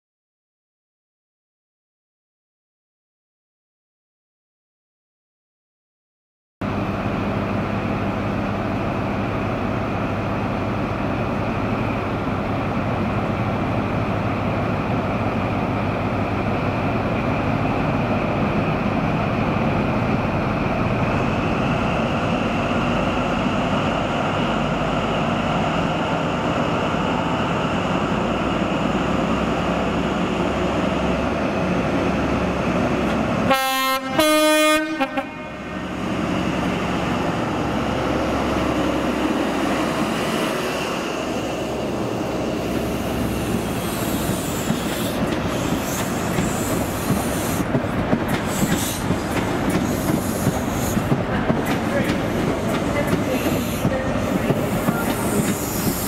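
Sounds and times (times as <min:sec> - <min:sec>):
diesel train engine running: 0:06.6 - 0:56.0
two-tone train horn: 0:33.4 - 0:35.8.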